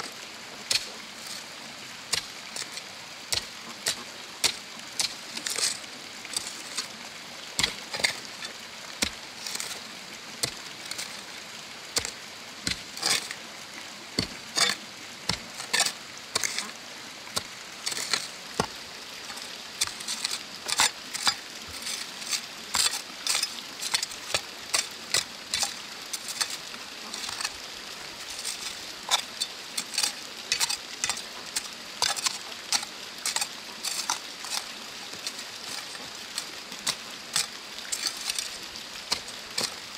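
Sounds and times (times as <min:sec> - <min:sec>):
gritty scraping of dirt: 0:02.1 - 0:07.0, 0:07.6 - 0:11.2, 0:12.0 - 0:13.4, 0:14.2 - 0:16.8, 0:17.4 - 0:39.9
hoe striking stony soil: 0:03.3 - 0:06.8, 0:07.6 - 0:08.2, 0:12.0 - 0:13.3, 0:14.2 - 0:16.7, 0:17.4 - 0:27.6, 0:28.3 - 0:34.7, 0:35.7 - 0:38.5, 0:39.1 - 0:39.8.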